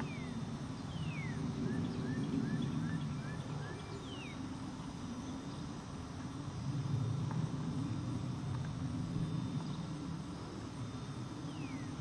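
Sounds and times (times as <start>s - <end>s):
faint high insect drone: 0.0s - 12.0s.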